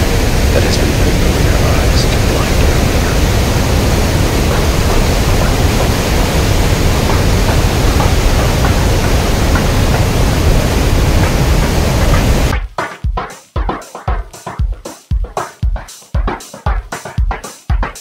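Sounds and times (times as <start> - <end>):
river rushing over rapids: 0.0 - 12.5.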